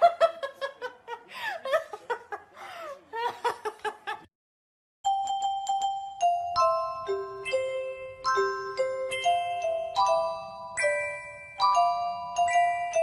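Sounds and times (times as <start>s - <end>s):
person giggling and laughing: 0.0s - 4.3s
bell-like background music: 5.1s - 13.0s.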